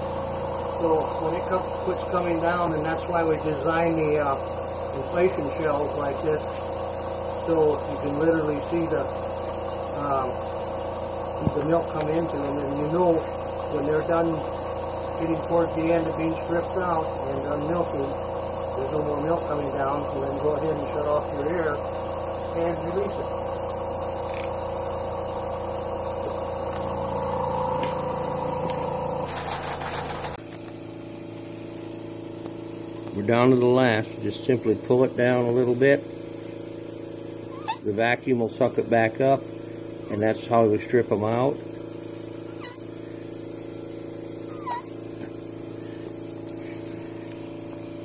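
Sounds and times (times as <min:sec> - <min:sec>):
vacuum pump motor hum: 0:00.0 - 0:48.0
short high squeaks: 0:37.4 - 0:38.0, 0:42.5 - 0:43.0, 0:44.4 - 0:45.3.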